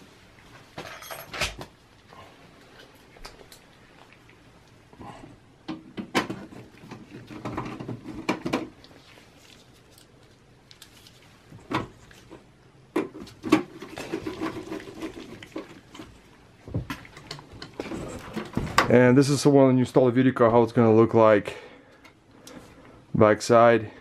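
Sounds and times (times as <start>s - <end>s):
scraping and rubbing: 13.2s - 16.3s, 17.6s - 18.8s.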